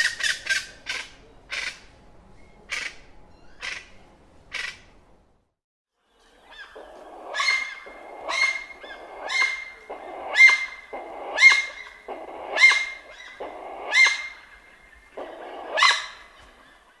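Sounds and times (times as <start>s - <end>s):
chachalaca harsh rasping calls: 6.6s - 16.4s.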